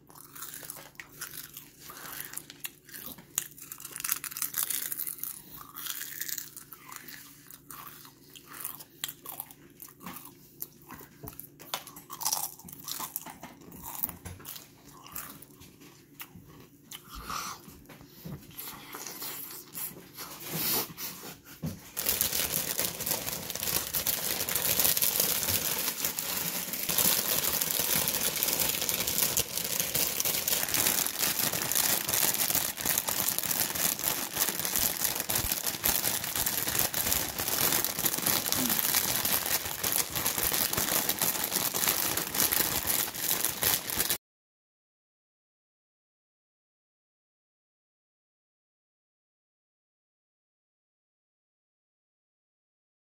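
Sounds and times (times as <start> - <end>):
foil chip bag crinkling: 0.2 - 7.0, 22.0 - 44.2.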